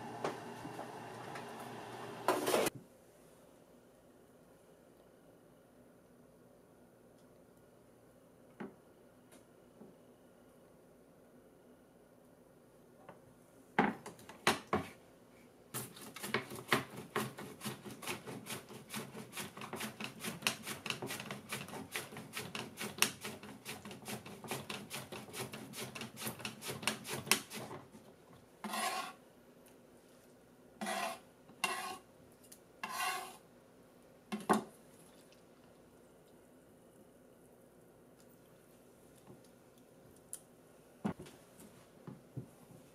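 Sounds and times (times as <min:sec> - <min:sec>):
onion rasping on mandoline slicer: 0:16.0 - 0:27.7, 0:28.6 - 0:29.2, 0:30.8 - 0:32.0, 0:32.8 - 0:33.4
short scraping sounds: 0:28.6 - 0:29.2, 0:30.8 - 0:32.0, 0:32.8 - 0:33.4.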